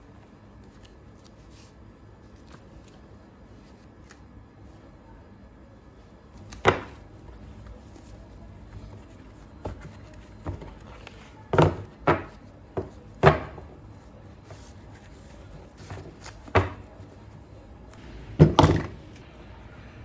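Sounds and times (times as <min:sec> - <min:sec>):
paper pads knocking on desk: 0:11.5 - 0:13.7
paper rustling: 0:14.0 - 0:17.2.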